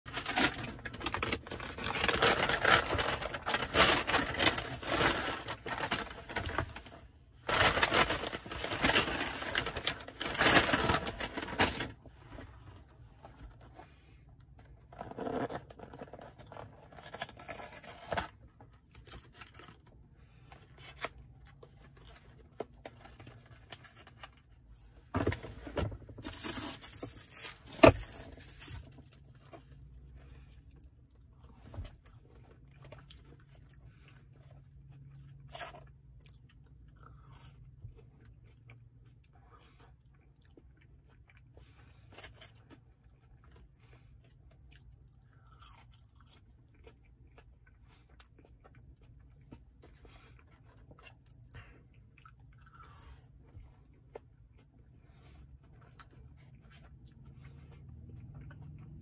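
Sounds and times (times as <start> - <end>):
paper packaging rustling: 0.1 - 12.5, 14.9 - 19.9, 25.2 - 29.7.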